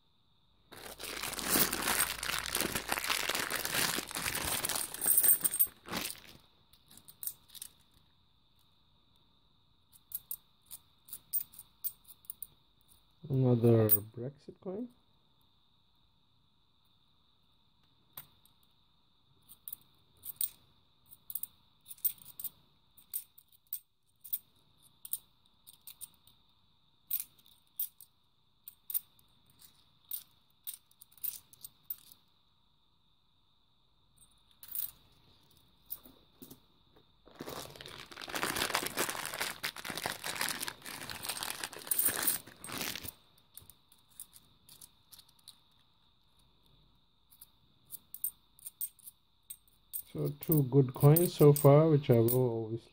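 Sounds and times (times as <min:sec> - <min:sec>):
loud rustling and crinkling: 0:00.7 - 0:06.4, 0:37.2 - 0:43.2
coins clicking and clinking: 0:04.8 - 0:05.8, 0:19.5 - 0:24.4, 0:28.7 - 0:32.2, 0:34.6 - 0:35.0, 0:41.8 - 0:45.6, 0:47.4 - 0:52.4.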